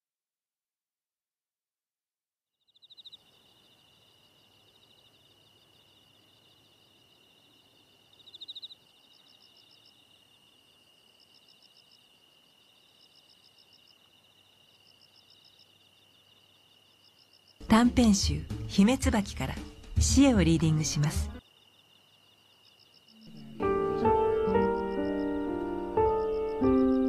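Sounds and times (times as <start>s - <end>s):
insects trilling chirps: 2.6s - 17.7s, 21.4s - 27.0s
insects high-pitched whine: 21.4s - 27.0s.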